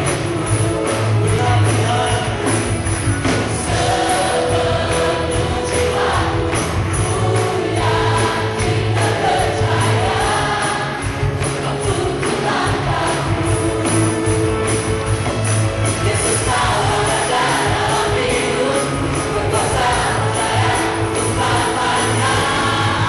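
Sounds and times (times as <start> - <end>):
drum kit: 0.0 - 23.0
keyboard playing: 0.0 - 23.0
voices singing along: 3.5 - 14.7, 15.9 - 23.0.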